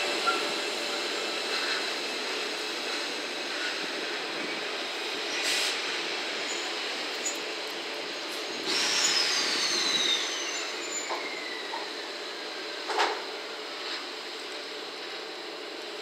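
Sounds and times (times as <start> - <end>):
electric locomotive rail noise: 0.0 - 16.0
high-pitched steel wheel squeal: 0.2 - 0.6, 6.4 - 7.4, 8.7 - 11.9.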